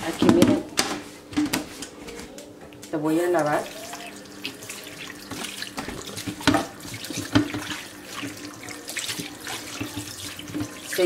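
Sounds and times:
water splashes: 3.5s - 11.0s
faucet running into a bowl: 3.6s - 11.0s.

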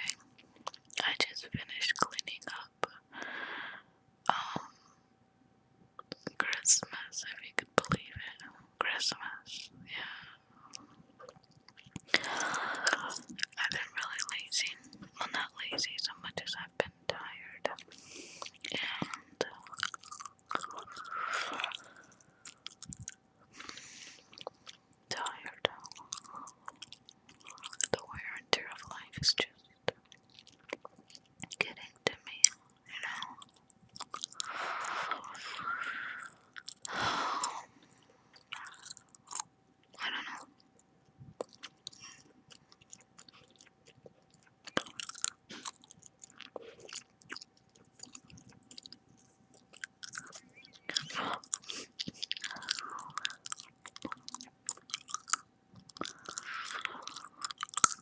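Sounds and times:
gum chewing smacks: 0.6s - 1.1s, 10.7s - 14.3s, 17.7s - 25.1s, 25.7s - 28.0s, 29.9s - 31.6s, 32.4s - 58.0s.

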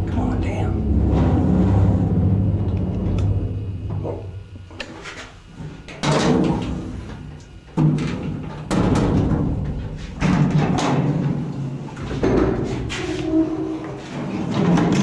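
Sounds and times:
elevator metal bangs: 0.6s - 4.7s.

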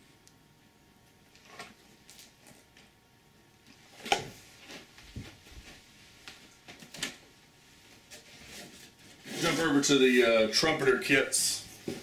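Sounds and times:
box knocking and rustling: 11.8s - 12.0s.

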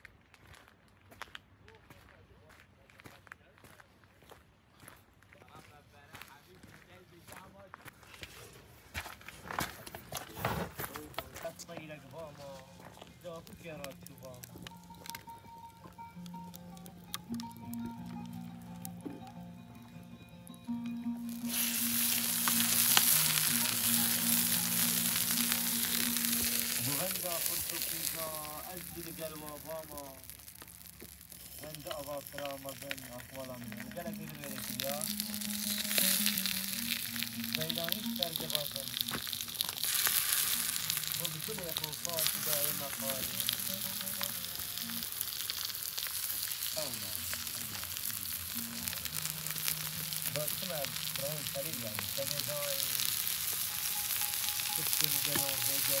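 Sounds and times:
oil sizzling on hot stone: 11.2s - 56.0s
background music with held notes: 11.6s - 45.3s, 46.7s - 56.0s.

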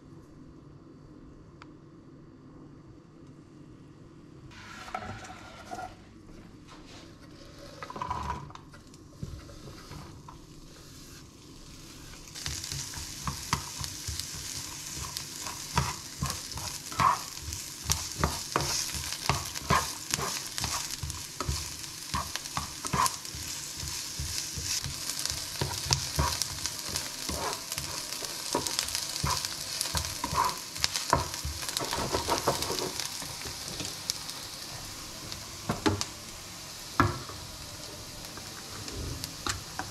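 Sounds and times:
spatula scraping a pan: 4.6s - 6.0s, 12.4s - 33.9s
onions sizzling in hot oil: 9.2s - 39.9s.

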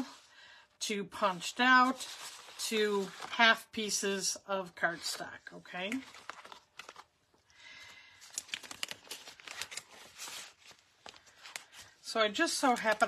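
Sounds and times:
paper rustling against plastic: 1.4s - 3.4s, 5.9s - 7.1s, 8.2s - 13.0s.

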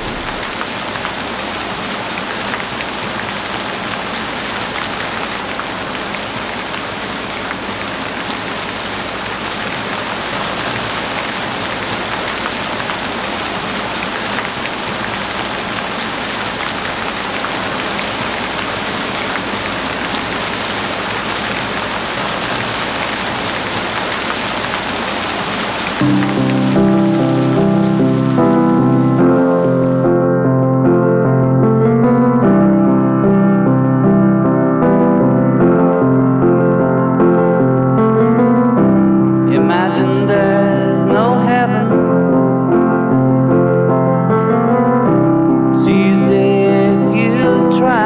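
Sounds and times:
heavy rain hiss: 0.0s - 30.1s.

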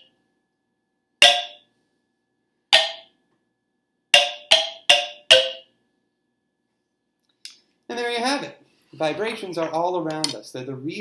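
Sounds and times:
wooden xylophone notes: 1.2s - 1.6s, 2.7s - 3.1s, 4.1s - 5.7s.

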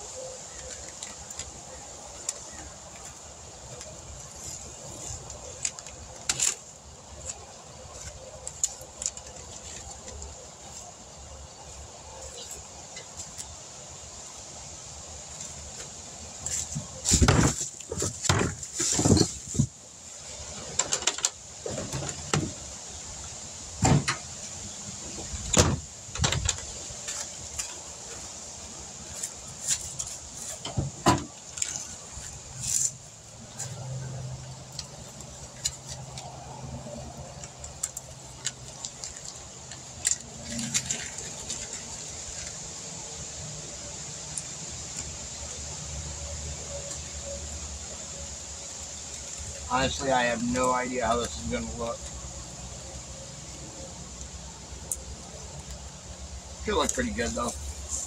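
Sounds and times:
thumps on truck: 17.1s - 19.7s, 23.8s - 24.2s, 25.5s - 26.6s, 30.6s - 31.3s.

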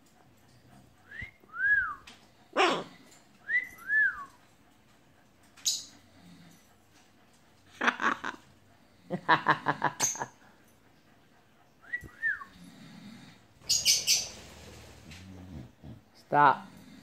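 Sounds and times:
parrot harsh bark-like call: 2.6s - 2.9s.

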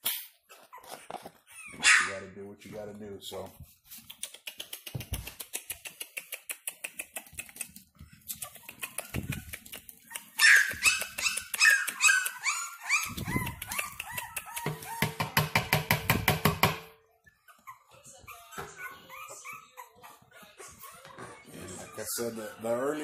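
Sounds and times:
puppies yelping and whining: 0.5s - 2.2s, 7.2s - 15.2s, 17.0s - 23.0s.

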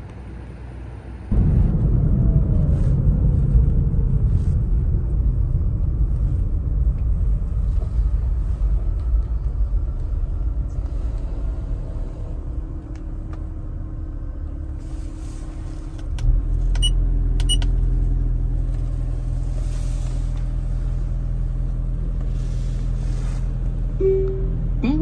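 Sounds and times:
steady low hum: 0.0s - 25.0s
car cabin rumble: 1.3s - 25.0s
touchscreen beeps: 24.0s - 24.6s.

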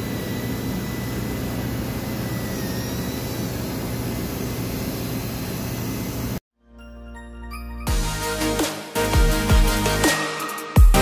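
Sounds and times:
engine room machinery running: 0.0s - 6.4s.

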